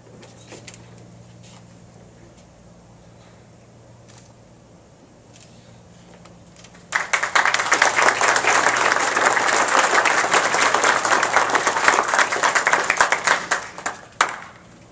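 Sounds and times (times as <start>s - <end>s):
audience applauding: 6.8s - 14.6s.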